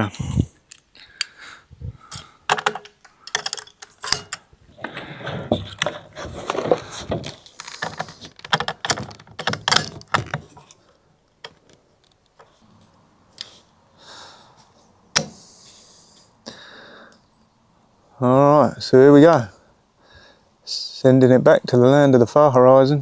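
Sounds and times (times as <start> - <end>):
rustling: 1.9 - 13.8
rifle clicks and metallic rattles: 2.1 - 4.5, 6.6 - 10.8.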